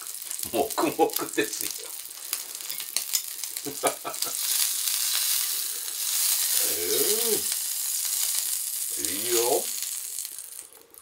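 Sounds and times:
meat sizzling on a grill plate: 0.0 - 11.0
man murmuring: 0.5 - 1.9, 6.6 - 7.6, 8.9 - 9.7.

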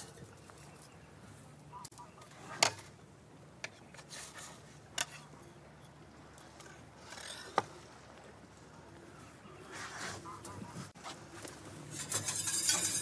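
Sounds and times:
soft scrapes: 9.6 - 13.0.

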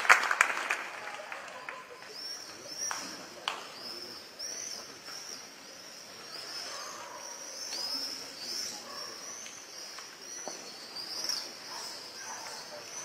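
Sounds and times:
birds chirping: 3.8 - 13.0.

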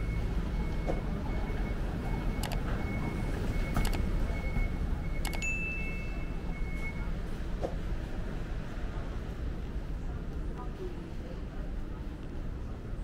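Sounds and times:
low rumble of traffic: 0.0 - 13.0
faint high ringing tone: 5.3 - 6.5.

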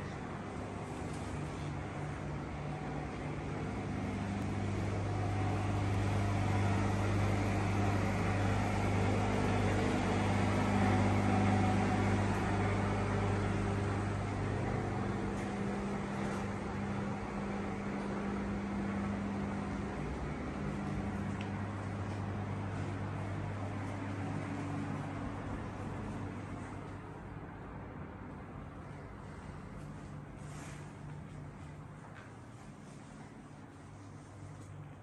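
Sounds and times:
low electrical hum: 0.0 - 35.0.

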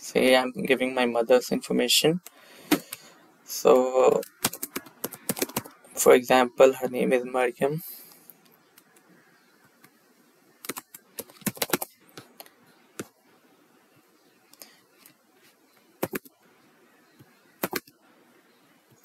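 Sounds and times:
computer keyboard typing: 4.1 - 5.7, 10.6 - 11.9, 17.6 - 17.9.

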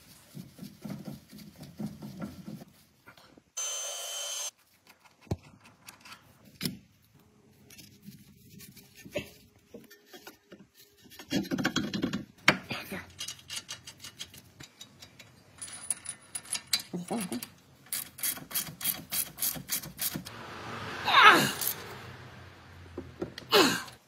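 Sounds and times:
sharp metal clicks and knocks: 13.2 - 20.3.

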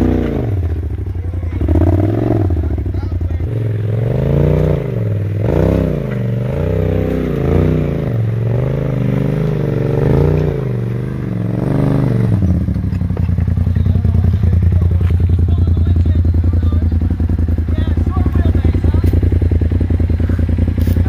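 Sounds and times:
buggy engine revving: 0.0 - 21.0
engine idling: 0.0 - 21.0.

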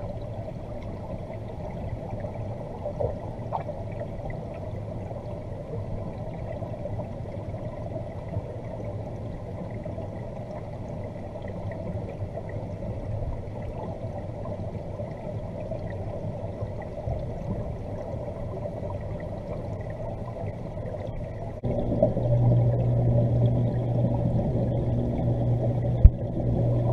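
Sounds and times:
faint low hum: 0.0 - 26.9
underwater water wash: 0.0 - 26.9.

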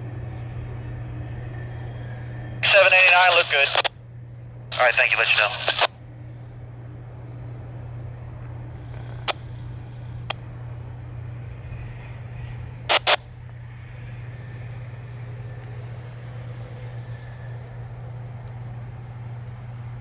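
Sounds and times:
freight train rolling past: 13.7 - 19.3.

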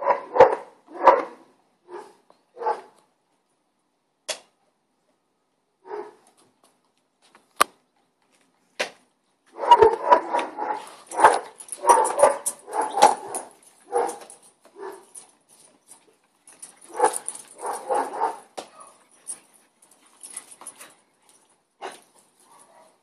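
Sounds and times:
dogs barking: 0.0 - 3.0, 5.8 - 6.2, 9.5 - 15.3, 16.6 - 19.4, 21.8 - 23.0.

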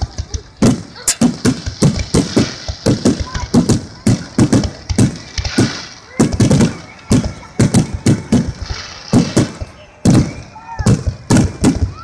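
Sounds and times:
fireworks bursting: 0.0 - 12.0.

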